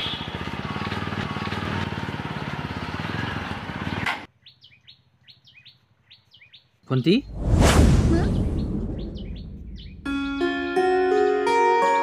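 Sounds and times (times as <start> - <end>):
motorcycle engine running: 0.0 - 4.1
small bird chirping: 4.3 - 7.3, 8.3 - 10.2.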